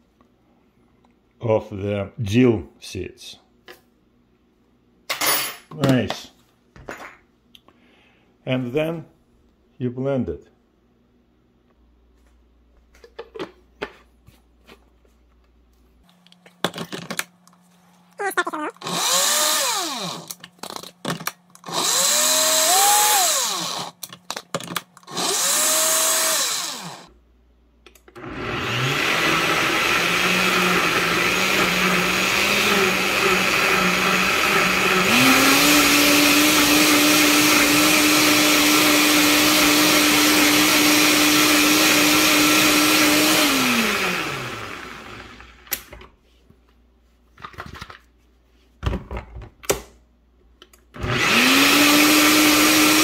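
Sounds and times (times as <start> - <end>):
blender motor running: 18.8 - 20.4, 21.7 - 24.0, 25.1 - 27.1, 28.2 - 45.7, 51.0 - 53.0.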